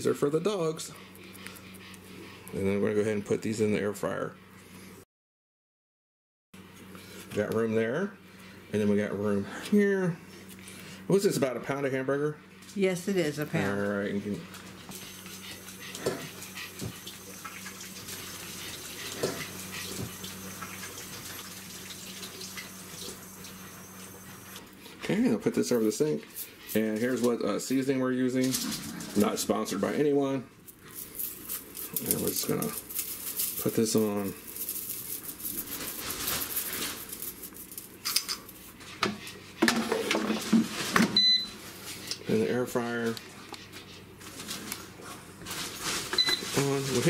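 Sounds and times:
dog panting: 0:00.6 - 0:02.8, 0:13.6 - 0:20.4.

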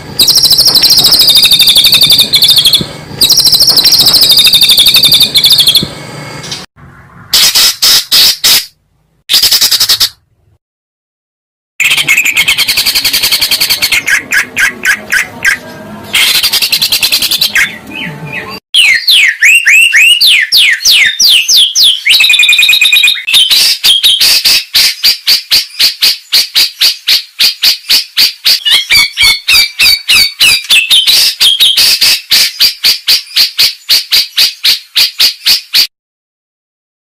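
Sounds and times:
sharp repeated bird notes: 0:00.0 - 0:10.4, 0:11.8 - 0:35.9
songbird calls: 0:11.8 - 0:35.8.

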